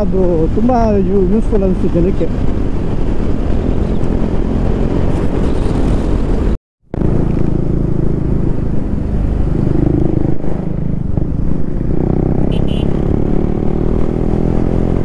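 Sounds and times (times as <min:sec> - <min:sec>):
wind noise: 0:00.0 - 0:15.0
motorcycle engine running: 0:02.4 - 0:13.8.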